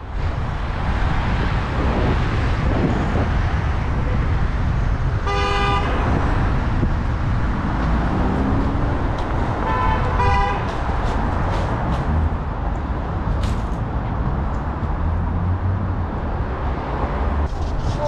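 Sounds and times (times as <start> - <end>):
wind rumble on microphone: 0.0 - 18.0
car horn toot: 5.2 - 6.0, 9.6 - 10.7
higher-pitched horn toot: 5.3 - 6.0.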